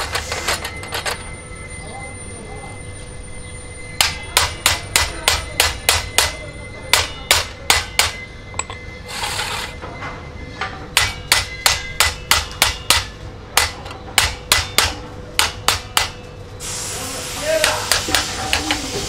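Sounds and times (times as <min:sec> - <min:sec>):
hammer striking metal: 0:04.0 - 0:16.2, 0:17.6 - 0:19.0.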